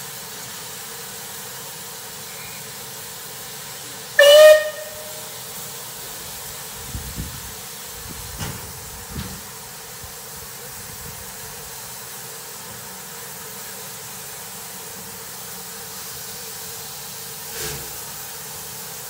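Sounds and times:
steam hissing: 0.0 - 19.0
steam whistle blast: 4.1 - 5.6.

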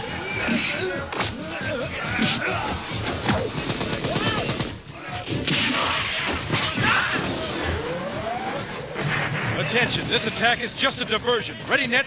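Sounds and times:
grunts and shouts: 0.1 - 3.4.

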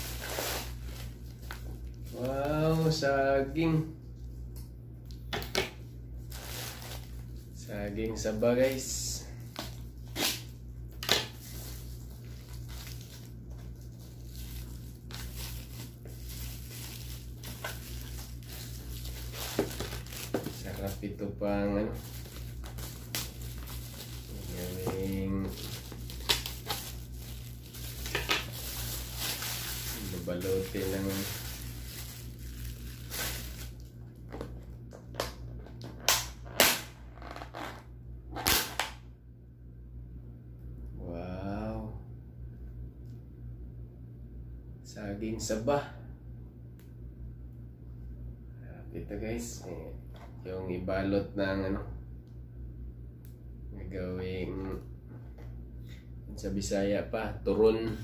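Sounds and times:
plastic wrapping crinkling and tearing: 0.0 - 2.9, 6.2 - 35.3
steady low hum: 0.0 - 58.0.

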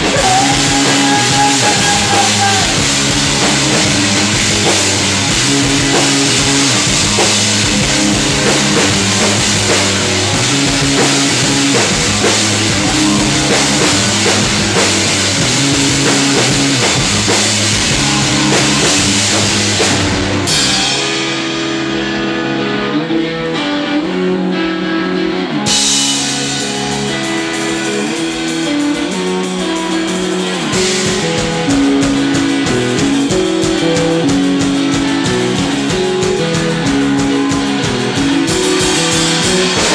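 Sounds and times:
drums ticking beat: 0.0 - 21.4, 26.0 - 39.9
electric guitar: 0.0 - 39.9
live rock band playing: 0.0 - 39.9.

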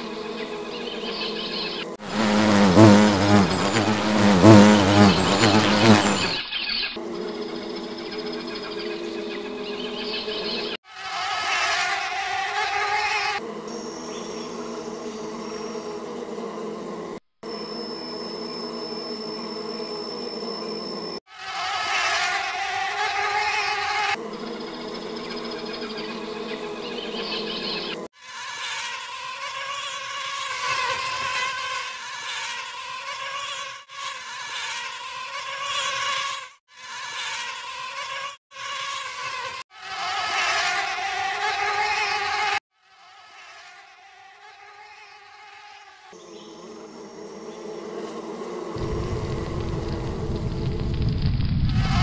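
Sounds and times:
bees buzzing: 0.0 - 6.4, 7.0 - 50.9
low rushing noise: 48.8 - 52.0.

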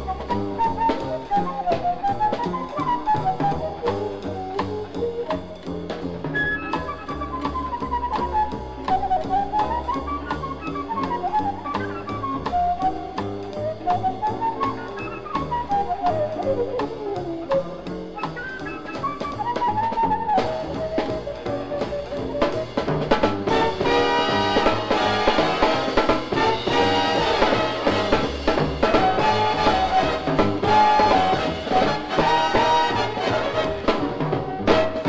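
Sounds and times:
big-band jazz: 0.0 - 35.0
drum kit drumming: 0.0 - 35.0
brass section playing: 23.1 - 35.0.

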